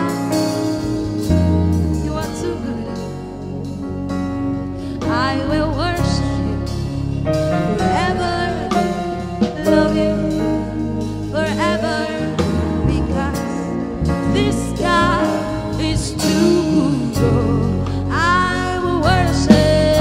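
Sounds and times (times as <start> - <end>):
sustained instrumental backing: 0.0 - 20.0
woman singing with vibrato: 1.7 - 3.3, 5.0 - 6.8, 7.5 - 20.0.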